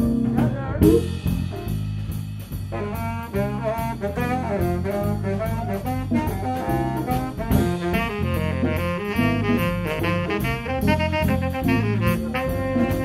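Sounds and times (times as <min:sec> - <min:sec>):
baritone saxophone: 0:00.0 - 0:01.4, 0:02.7 - 0:13.0
bass: 0:00.0 - 0:13.0
drums: 0:00.0 - 0:13.0
tenor saxophone: 0:02.7 - 0:13.0.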